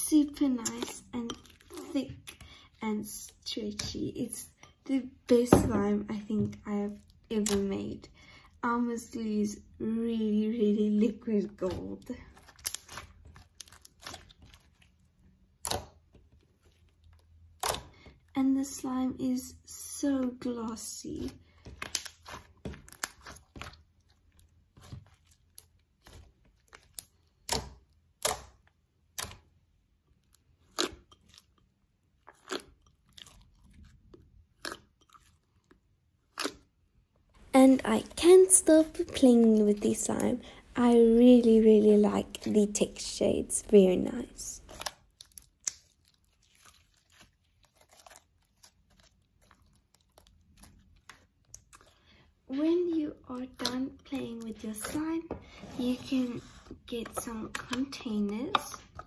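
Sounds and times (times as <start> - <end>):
slime clicking and crackling: 0.2 - 2.4, 11.6 - 18.0, 20.7 - 36.7, 44.2 - 52.0, 52.6 - 55.2, 56.8 - 59.0.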